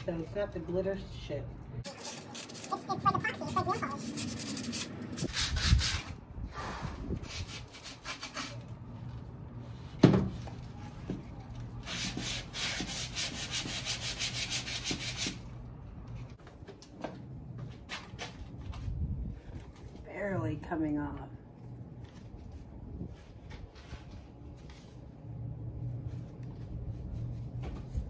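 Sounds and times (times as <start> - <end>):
sanding sponge scratching wood: 2.0 - 6.1, 11.9 - 15.4.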